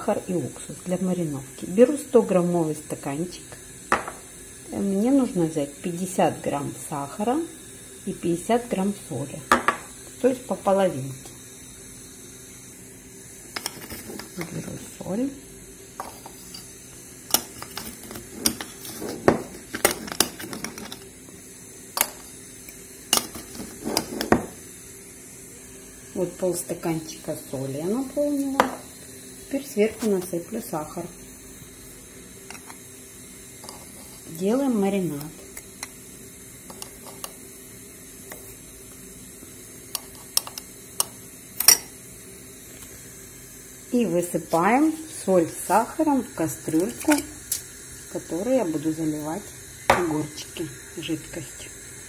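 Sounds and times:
spoon scraping through salt: 0:16.0 - 0:21.1, 0:23.2 - 0:24.4, 0:33.6 - 0:34.4
metal spoon clinking on glass: 0:40.4 - 0:41.9.

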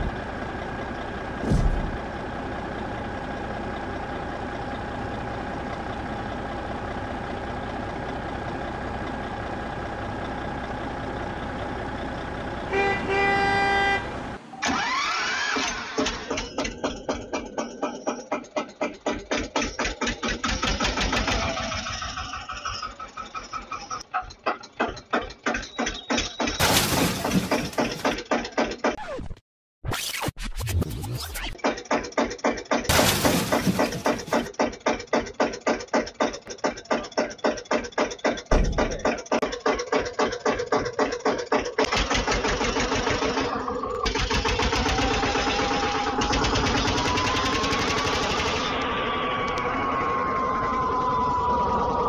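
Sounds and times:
tractor engine chugging: 0:00.0 - 0:26.6, 0:31.6 - 0:48.8
toy tractor crashing over: 0:14.6 - 0:16.8, 0:26.2 - 0:28.8, 0:31.6 - 0:48.6
toy engine with rising whine: 0:14.6 - 0:17.1, 0:20.5 - 0:24.0, 0:41.8 - 0:52.0.

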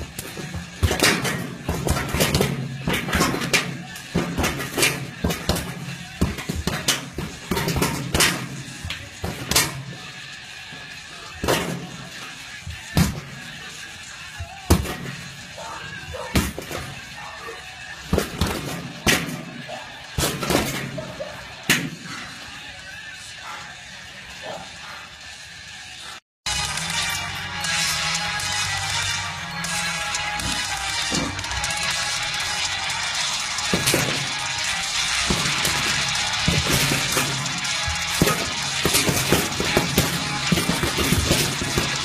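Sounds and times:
punches thudding on punching bag: 0:00.2 - 0:08.6, 0:09.2 - 0:09.8, 0:14.6 - 0:15.1, 0:16.2 - 0:17.0, 0:18.1 - 0:19.5, 0:35.3 - 0:37.4, 0:38.0 - 0:42.0.

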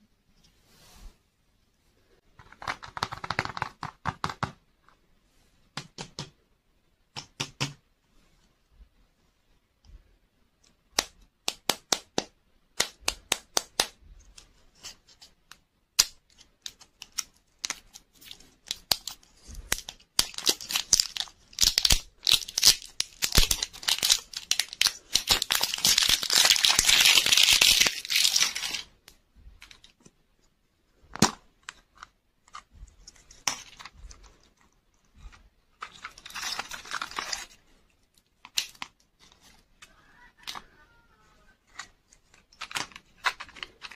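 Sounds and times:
sharp clicks of plastic handling: 0:10.6 - 0:40.7, 0:41.6 - 0:43.9
plastic wrapper crinkling and tearing: 0:16.3 - 0:28.9, 0:35.8 - 0:39.6, 0:41.7 - 0:43.9.

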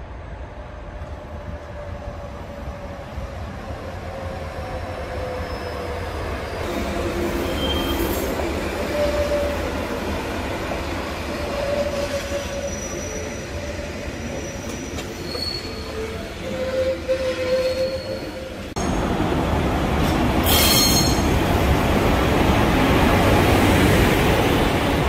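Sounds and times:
low rumble of wheels on rails: 0:00.0 - 0:25.0
train wheels squealing: 0:05.2 - 0:09.8, 0:11.3 - 0:19.0, 0:20.4 - 0:21.4.

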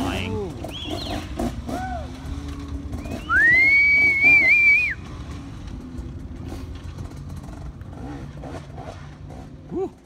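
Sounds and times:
faint dirt bike engine: 0:00.0 - 0:10.0
person whistling loudly: 0:03.1 - 0:05.0.

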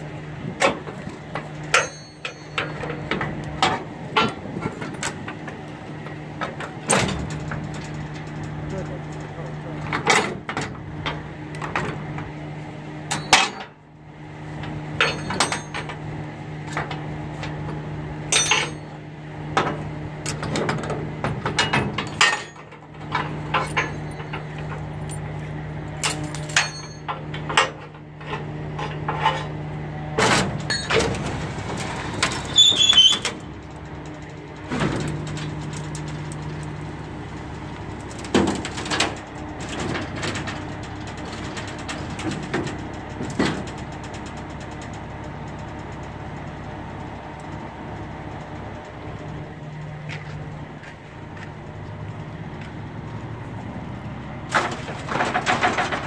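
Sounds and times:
metallic clanks on steel plates: 0:01.7 - 0:03.1, 0:18.3 - 0:18.9, 0:26.0 - 0:29.5.

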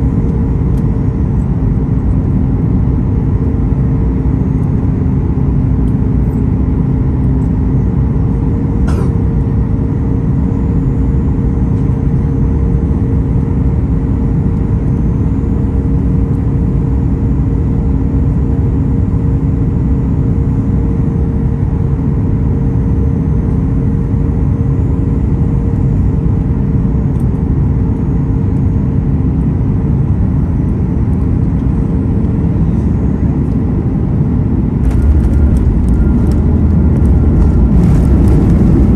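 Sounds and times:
airplane cabin engine noise: 0:00.0 - 0:38.9
humming tones: 0:31.5 - 0:38.9.

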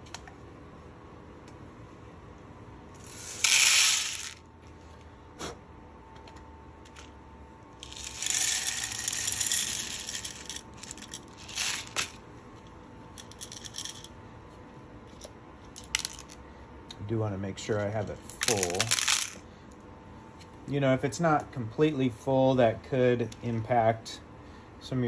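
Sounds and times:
coffee beans rattling poured: 0:03.0 - 0:04.4, 0:07.8 - 0:12.2, 0:13.2 - 0:14.1, 0:18.3 - 0:19.4.

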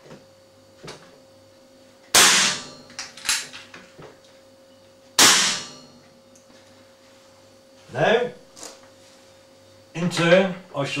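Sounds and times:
air rifle shots: 0:02.2 - 0:02.8, 0:05.2 - 0:05.7.

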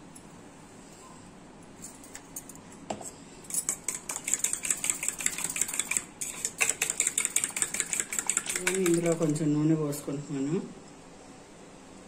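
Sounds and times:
spoon clinking against steel bowl: 0:03.5 - 0:09.4.

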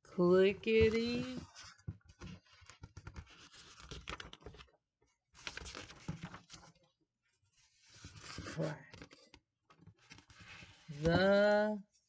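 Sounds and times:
paper rustling: 0:00.7 - 0:04.7, 0:05.4 - 0:06.8, 0:07.6 - 0:11.4
page turning: 0:00.8 - 0:04.7, 0:05.4 - 0:06.8, 0:07.6 - 0:11.3.

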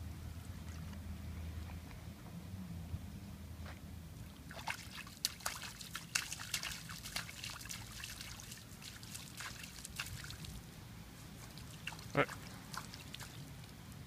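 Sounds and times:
small water splashes: 0:04.2 - 0:10.7, 0:11.4 - 0:14.0.

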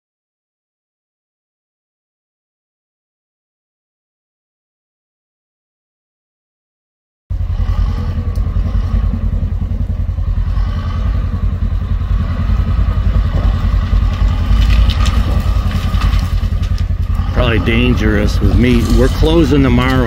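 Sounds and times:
bulldozer diesel engine running: 0:07.3 - 0:20.0.

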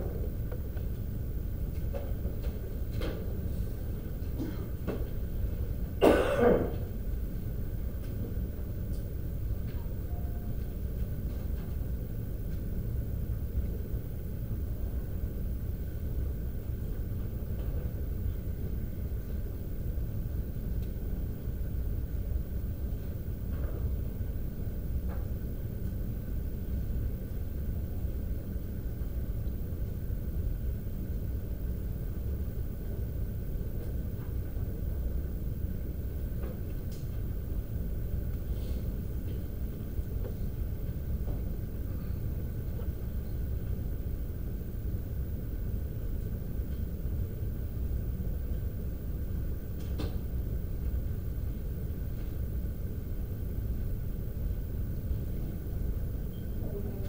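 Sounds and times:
low rumble of room noise: 0:00.0 - 0:57.0
person coughing: 0:04.4 - 0:04.8, 0:06.0 - 0:06.8.

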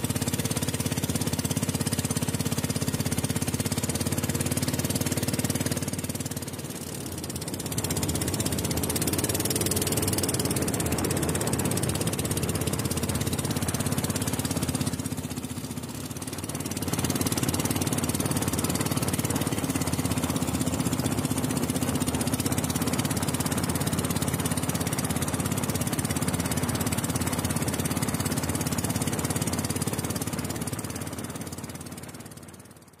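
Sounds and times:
motorboat engine running: 0:00.0 - 0:33.0
hull rushing through water: 0:03.3 - 0:32.0.

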